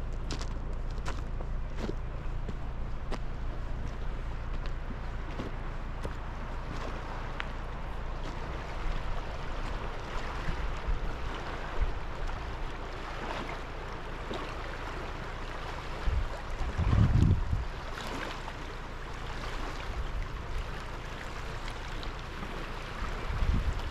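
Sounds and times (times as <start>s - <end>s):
wind buffeting microphone: 0.0s - 13.0s, 15.8s - 18.0s, 22.4s - 23.9s
water rushing: 2.2s - 23.9s.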